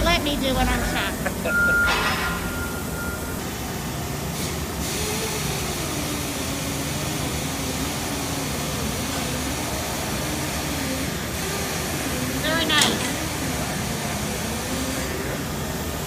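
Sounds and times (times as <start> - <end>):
industrial machinery running: 0.0 - 16.0
faint wavering tone: 1.4 - 3.8.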